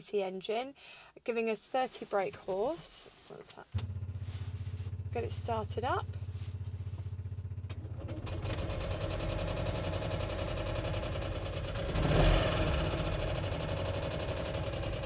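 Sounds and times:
two-stroke engine starting and running: 0:03.8 - 0:15.0.

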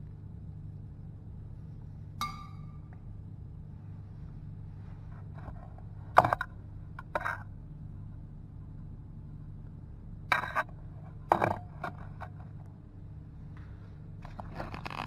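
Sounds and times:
low hum: 0:00.0 - 0:15.0
metal cup clinking: 0:02.2 - 0:02.8.

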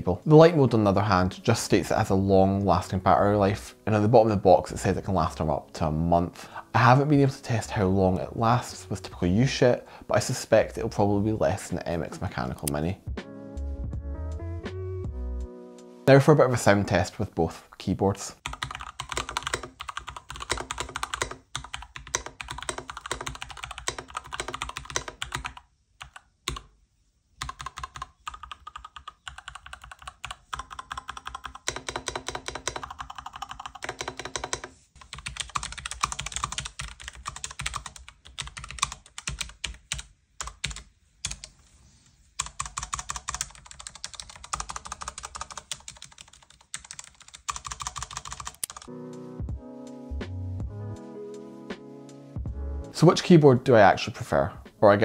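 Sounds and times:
music: 0:00.0 - 0:17.1, 0:48.8 - 0:55.0
mechanical keyboard typing: 0:18.4 - 0:26.7, 0:27.4 - 0:41.5, 0:42.4 - 0:48.9.

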